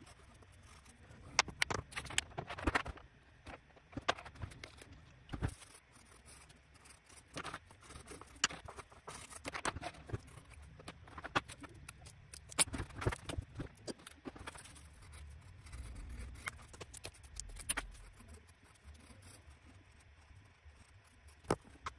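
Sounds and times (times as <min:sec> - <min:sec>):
pencil scratching on paper: 0:00.0 - 0:02.8, 0:05.4 - 0:11.7, 0:14.3 - 0:21.9.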